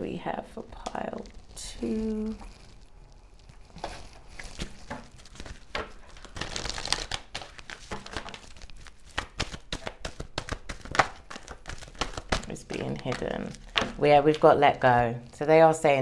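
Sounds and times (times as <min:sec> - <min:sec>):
cards shuffling: 0:03.8 - 0:14.5.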